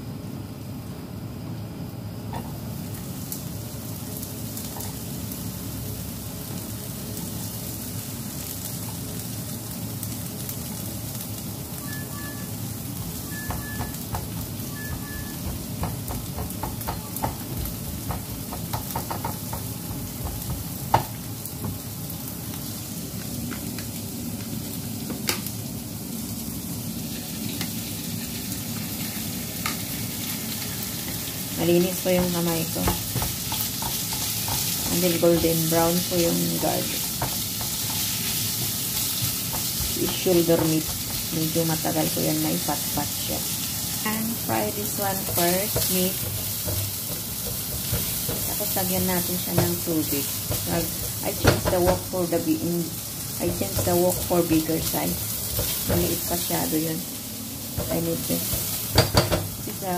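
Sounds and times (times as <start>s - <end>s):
garlic and onion sizzling in oil: 0.0s - 59.9s
short beeps: 11.8s - 12.6s, 13.2s - 14.0s, 14.7s - 15.4s.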